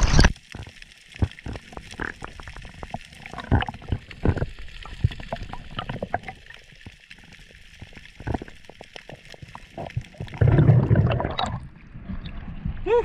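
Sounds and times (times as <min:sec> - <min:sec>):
underwater clicks and knocks: 0:00.0 - 0:07.0, 0:07.8 - 0:12.4.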